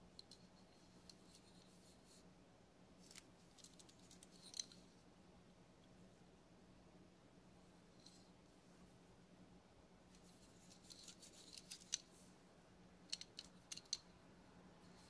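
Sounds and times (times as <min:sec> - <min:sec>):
small clicks and rustles: 0:00.0 - 0:02.3, 0:03.0 - 0:05.1, 0:07.9 - 0:08.4, 0:10.1 - 0:12.4, 0:13.0 - 0:14.2
faint steady hum: 0:00.0 - 0:15.0.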